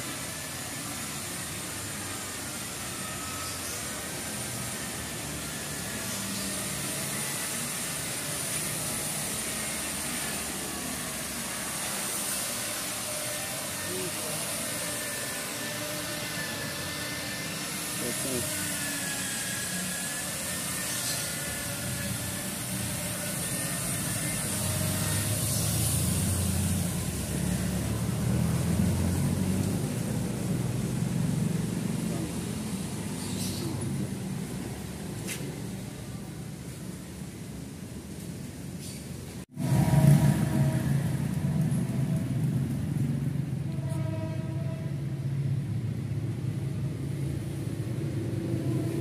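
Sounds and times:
electric car polisher running: 0.0 - 36.2
low mechanical hum: 0.0 - 49.0.

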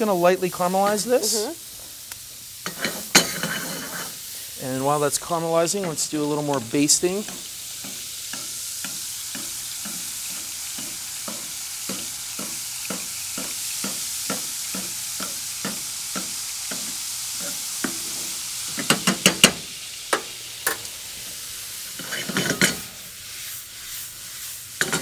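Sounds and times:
duck breast sizzling in fat: 0.0 - 25.0
metal clanks on pan: 2.6 - 4.1, 10.8 - 18.0, 18.7 - 20.9, 22.0 - 22.9, 24.8 - 25.0
spoon tapping against pan: 10.8 - 16.9.

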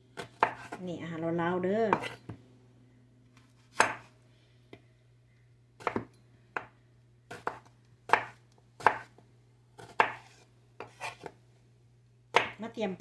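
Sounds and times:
faint low hum: 0.0 - 13.0
knife chopping on wooden board: 0.2 - 0.8, 1.9 - 2.3, 3.7 - 4.1, 5.8 - 6.7, 7.3 - 9.2, 9.8 - 11.3.

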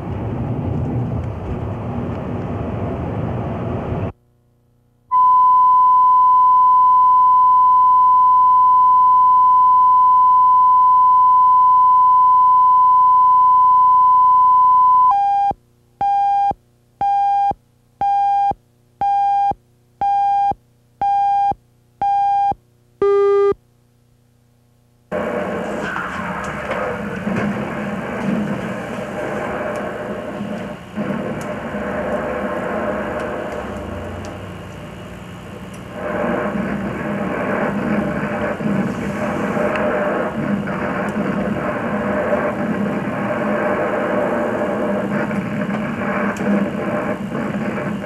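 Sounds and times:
short countdown beeps: 5.1 - 23.6
steady pure test tone: 5.1 - 23.6
loud noise: 25.1 - 35.3, 35.9 - 48.0.

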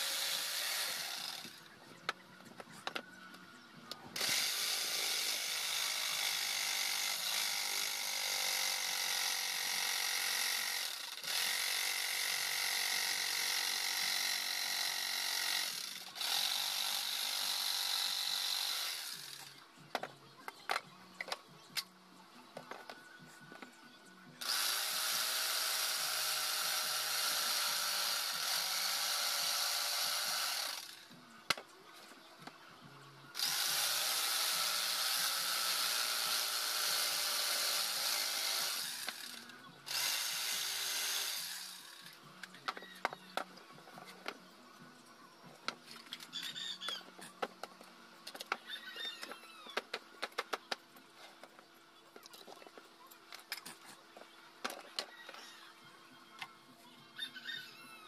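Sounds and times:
electric jigsaw cutting wood: 0.0 - 1.6, 4.2 - 19.6, 24.4 - 31.1, 33.4 - 42.2
scattered clicks and knocks: 49.2 - 50.8.

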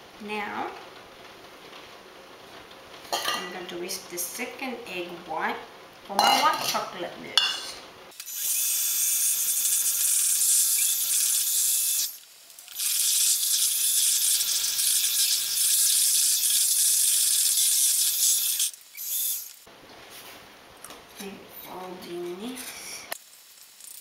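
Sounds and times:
electric hand mixer whisking: 12.8 - 19.6.

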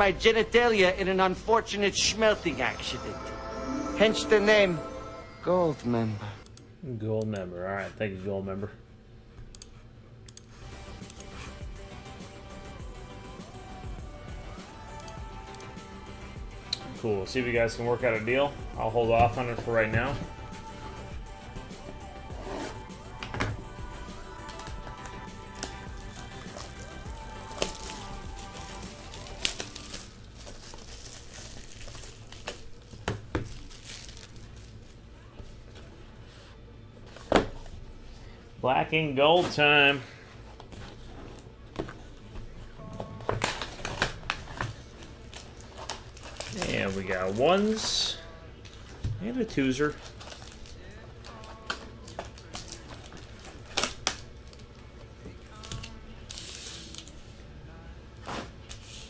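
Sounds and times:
plastic packaging crinkling: 24.4 - 35.1, 43.4 - 47.9, 49.8 - 54.7.

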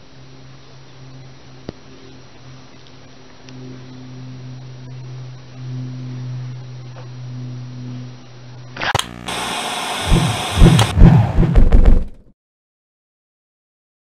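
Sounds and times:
steady low hum: 0.0 - 12.0
rapid clicks: 8.8 - 12.0.

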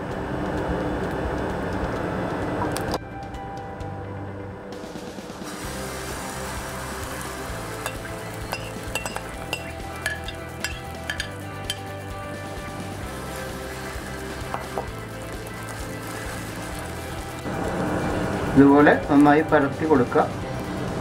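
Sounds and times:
batter sizzling in oil: 5.4 - 21.0
steel spoon clinking: 7.8 - 12.0.

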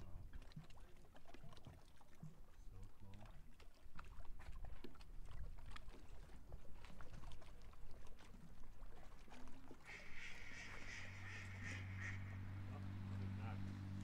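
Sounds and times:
low steady motor hum: 0.0 - 14.0
animal high pulsed calls: 10.8 - 12.4.

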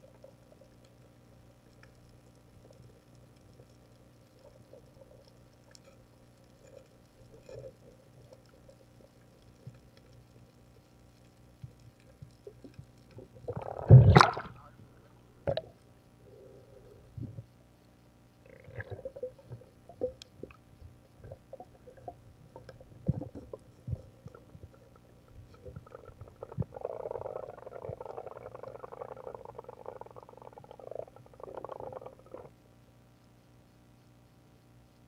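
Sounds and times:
faint underwater hum: 0.0 - 35.0
rush of water bubbles: 13.4 - 14.7, 18.5 - 20.6.

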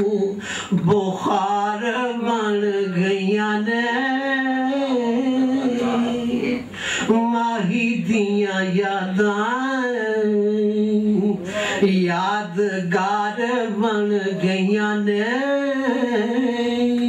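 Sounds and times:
man singing unaccompanied: 0.0 - 17.0
breath: 0.4 - 0.8, 6.7 - 7.1, 11.4 - 11.8.

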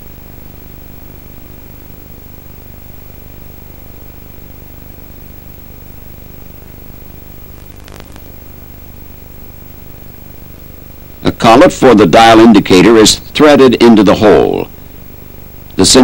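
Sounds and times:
low electrical hum: 0.0 - 16.0
tape hiss: 0.0 - 16.0
faint click: 7.6 - 8.4.

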